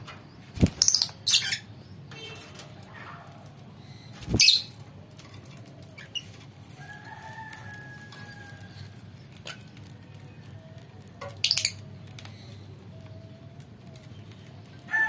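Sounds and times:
lovebirds shrieking: 3.9 - 4.8.

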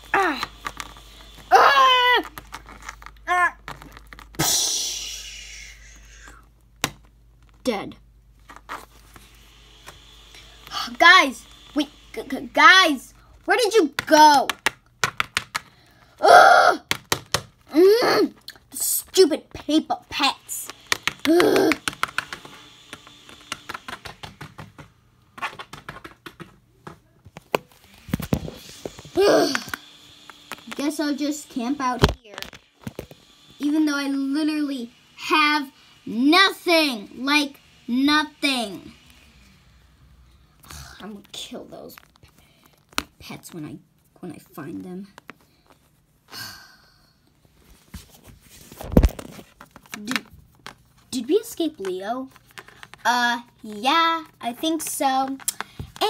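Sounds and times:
plastic toys tapping on wooden floor: 14.0 - 15.7, 20.7 - 22.5, 23.5 - 27.6
breathy sigh: 46.3 - 47.2.

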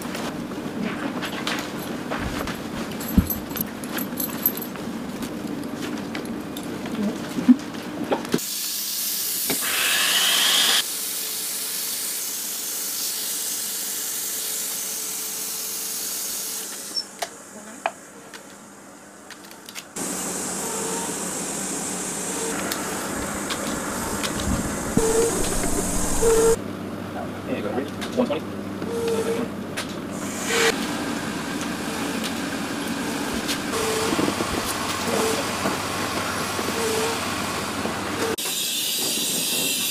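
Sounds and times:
steady hiss of gas flowing: 20.0 - 26.6.

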